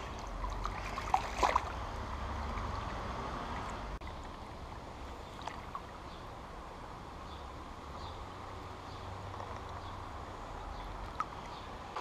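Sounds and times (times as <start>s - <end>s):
short splashes: 0.0s - 4.4s
shallow river flowing: 0.0s - 12.0s.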